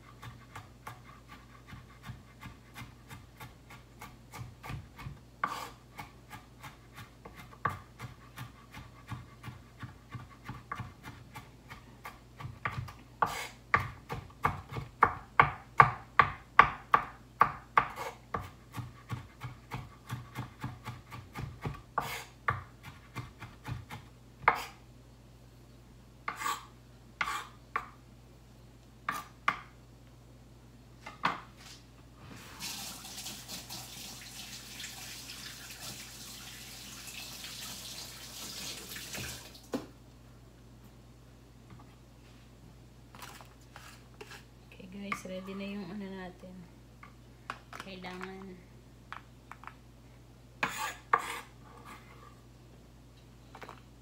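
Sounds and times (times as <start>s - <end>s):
knife chopping on wooden board: 0.2s - 24.8s
kitchen tap running: 32.6s - 39.8s.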